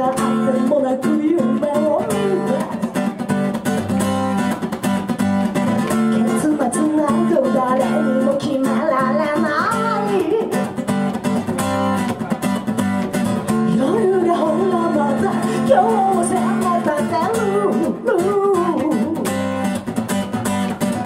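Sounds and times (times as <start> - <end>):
woman singing: 0.0 - 3.0, 5.9 - 10.8, 13.5 - 19.5
acoustic guitar strumming: 0.0 - 21.0.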